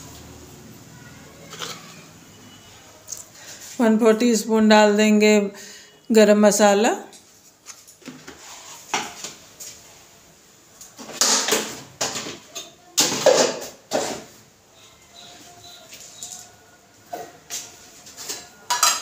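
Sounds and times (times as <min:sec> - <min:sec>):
kitchen scraping and clattering: 0:01.4 - 0:02.6, 0:11.0 - 0:14.4, 0:15.7 - 0:19.0.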